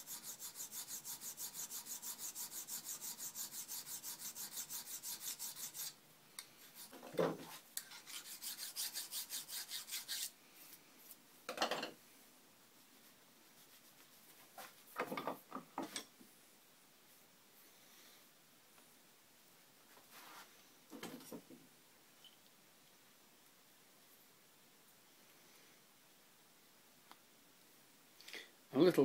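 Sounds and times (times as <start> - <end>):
hand file rasping on metal: 0.0 - 6.0, 7.8 - 10.3.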